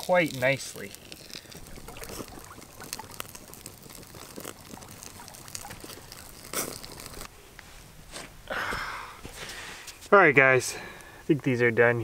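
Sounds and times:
fish sizzling over coals: 0.0 - 7.3.

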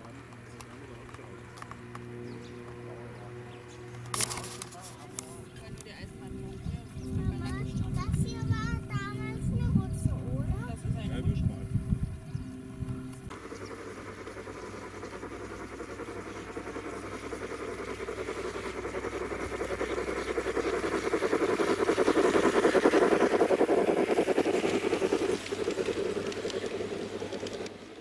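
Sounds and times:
model train wheels rattling on rail: 13.4 - 28.0.

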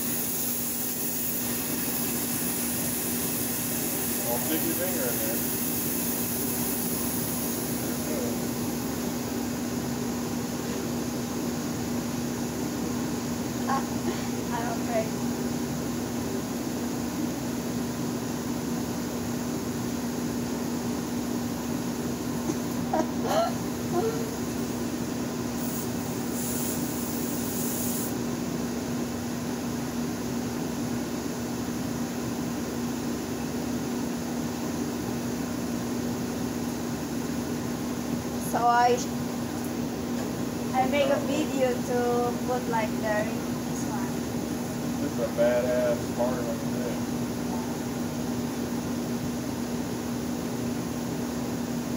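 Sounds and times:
air hissing: 0.0 - 8.8, 25.4 - 28.2
air compressor motor hum: 0.0 - 51.9.

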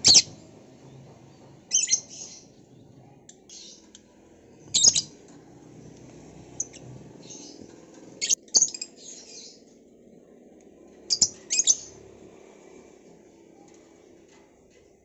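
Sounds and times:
loud high-pitched bird calls: 0.0 - 0.4, 4.7 - 5.2, 11.1 - 12.0
lovebirds chirping: 0.0 - 0.4, 1.7 - 5.2, 5.9 - 9.7, 11.1 - 12.0.

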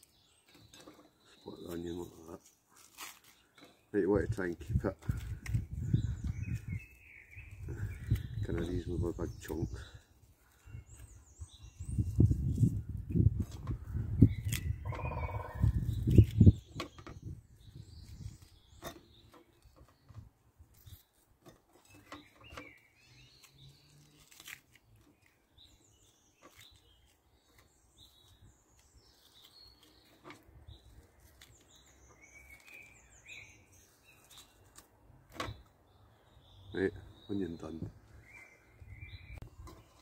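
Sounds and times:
birds chirping and singing: 0.0 - 40.0
onion layers pulled apart: 14.3 - 14.8, 23.4 - 25.4.

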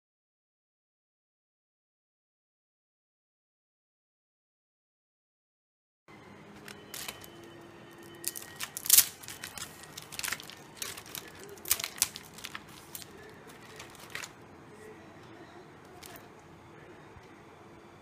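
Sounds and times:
fried snacks crackling in basket: 6.6 - 14.4, 15.9 - 16.2.

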